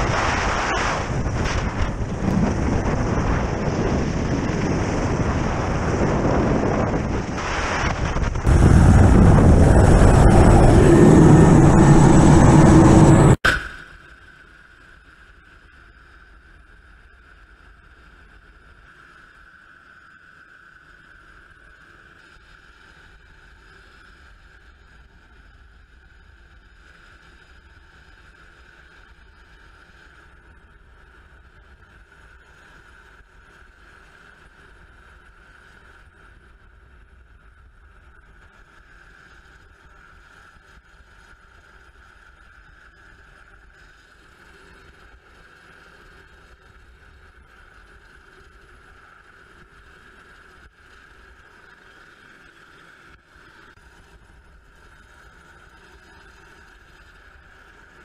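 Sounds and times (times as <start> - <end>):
helicopter high whine: 0.0 - 13.4
helicopter low rumble: 0.0 - 13.4.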